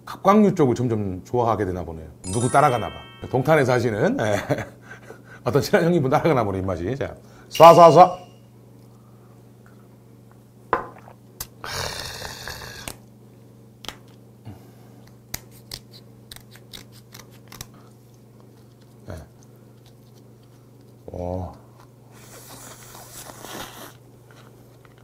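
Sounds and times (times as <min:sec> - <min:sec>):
scissors snipping crab shell: 0:15.1 - 0:17.8.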